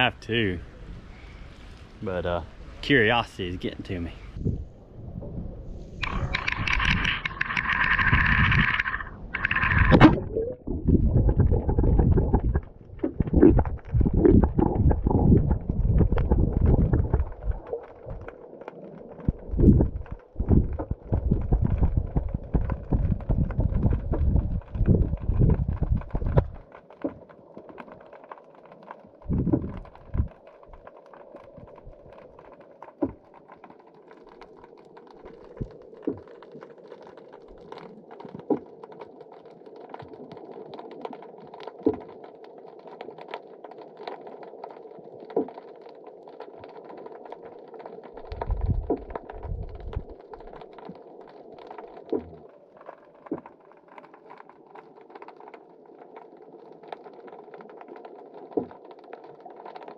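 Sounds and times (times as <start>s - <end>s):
low rumbles: 0.0s - 18.3s, 19.2s - 26.6s, 29.3s - 30.4s
muffled underwater hum: 4.2s - 18.3s
clicks and crackles: 5.9s - 59.9s.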